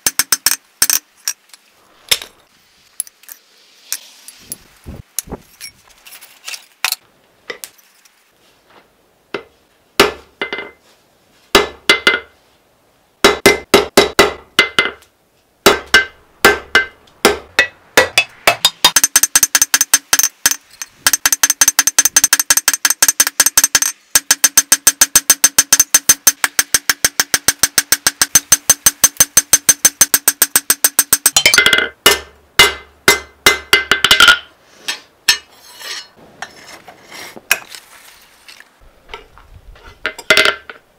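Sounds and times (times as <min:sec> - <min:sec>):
hammer striking steel on anvil: 0:15.7 - 0:36.1.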